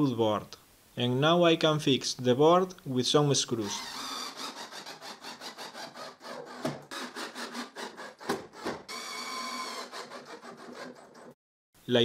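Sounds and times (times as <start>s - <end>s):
drill motor whining: 3.6s - 11.3s
drill driving screw into wood: 3.7s - 11.3s.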